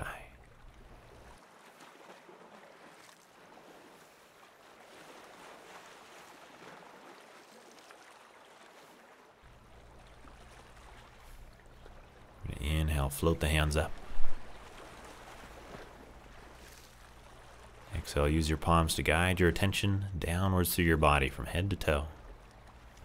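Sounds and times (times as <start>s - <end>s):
small waves lapping on rocks: 0.5s - 12.8s, 13.8s - 18.0s.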